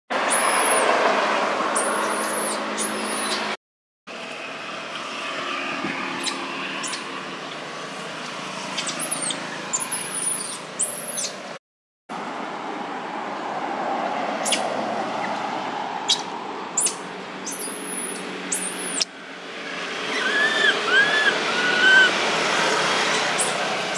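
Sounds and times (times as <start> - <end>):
very high-pitched chirps: 16.1 - 19.1.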